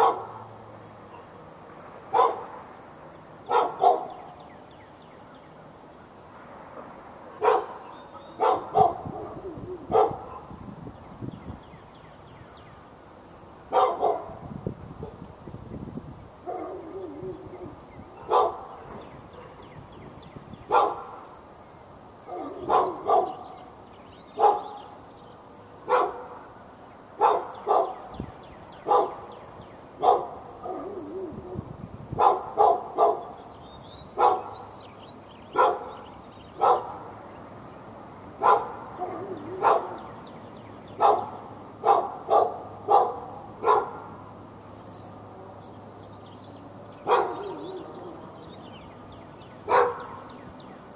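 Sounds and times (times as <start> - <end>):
dog barking: 0.0 - 0.4, 2.1 - 2.6, 3.5 - 4.2, 7.4 - 7.8, 8.4 - 10.5, 13.7 - 14.4, 16.5 - 17.0, 18.2 - 19.6, 20.7 - 21.2, 22.3 - 23.6, 24.4 - 24.8, 25.9 - 26.5, 27.2 - 28.0, 28.9 - 29.2, 30.0 - 31.0, 32.2 - 33.3, 34.2 - 34.6, 35.6 - 36.0, 36.6 - 37.1, 38.4 - 40.0, 41.0 - 44.2, 47.0 - 47.9, 49.7 - 50.3.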